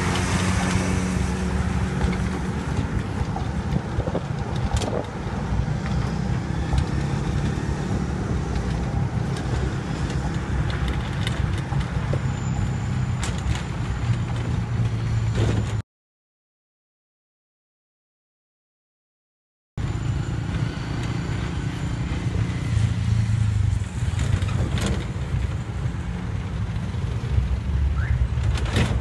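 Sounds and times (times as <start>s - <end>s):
truck engine and road noise: 0.0s - 15.8s, 19.8s - 29.0s
sharp clicks and knocks: 1.9s - 5.2s.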